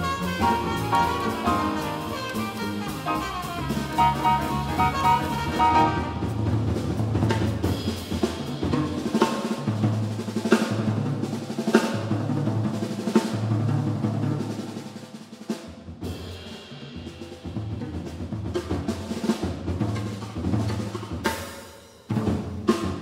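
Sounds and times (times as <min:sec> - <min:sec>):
trumpet phrase: 0:00.0 - 0:06.4
double bass notes: 0:00.0 - 0:07.5
jazz drum kit: 0:00.0 - 0:23.0.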